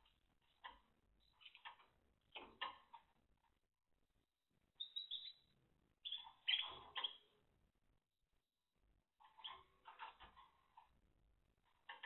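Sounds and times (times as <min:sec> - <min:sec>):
canaries chirping: 0:00.0 - 0:03.1, 0:04.8 - 0:07.4, 0:09.2 - 0:10.9, 0:11.6 - 0:12.0.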